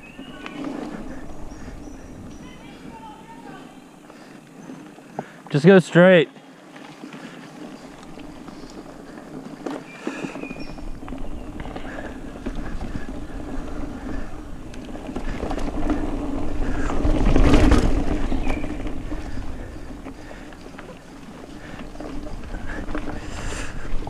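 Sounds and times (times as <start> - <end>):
bike clicking and rattling: 0.0 - 3.4, 6.6 - 24.0
bike tyres rolling on dirt: 0.0 - 24.0
wind noise on microphone: 10.4 - 20.5, 21.6 - 24.0.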